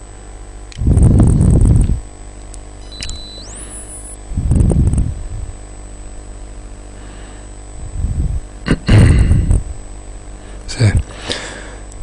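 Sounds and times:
microphone line hum: 0:00.0 - 0:12.0
faint high whine: 0:00.7 - 0:08.5
electronic tone gliding upward: 0:02.8 - 0:04.2.

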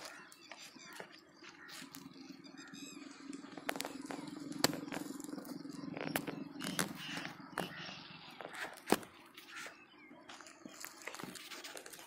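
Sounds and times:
low rumble of flames: 0:01.9 - 0:08.9.

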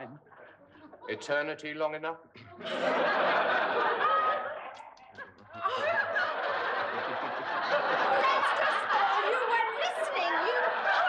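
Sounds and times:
studio audience laughing: 0:02.6 - 0:11.0.

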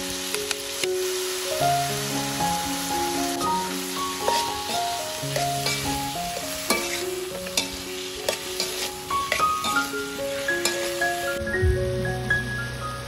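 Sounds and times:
food sizzling in pan: 0:00.0 - 0:13.0
plucked background music: 0:00.0 - 0:13.0
utensil striking pan: 0:04.1 - 0:11.2.

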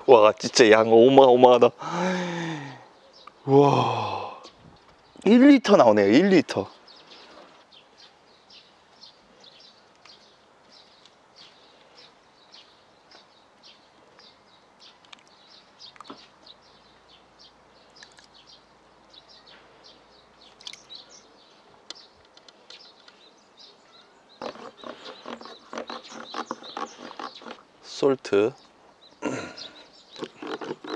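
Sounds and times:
birds chirping: 0:00.0 - 0:30.9
rough rasping sound: 0:24.4 - 0:27.7, 0:30.2 - 0:30.9.

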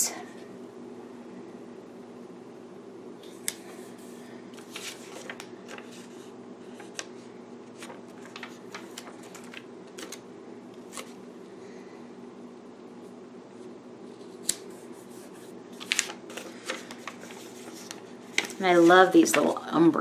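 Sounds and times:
steady low hum: 0:00.0 - 0:20.0
paper clicks and rustles: 0:04.5 - 0:10.2, 0:10.8 - 0:11.2, 0:15.8 - 0:19.6.

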